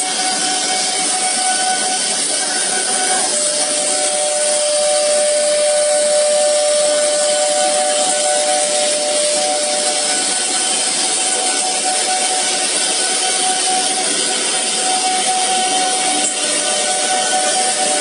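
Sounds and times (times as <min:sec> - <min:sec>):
cnc router whine: 0:00.0 - 0:18.0
second steady tone: 0:02.4 - 0:10.7.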